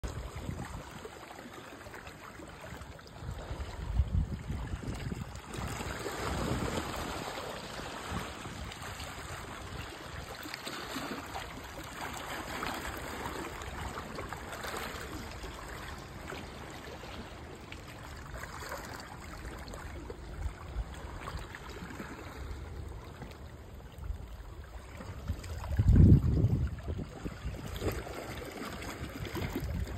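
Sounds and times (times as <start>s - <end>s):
wind rumbling on microphone: 0.0s - 1.1s, 3.1s - 10.4s, 19.1s - 29.9s
water splashing against rocks: 0.0s - 29.9s.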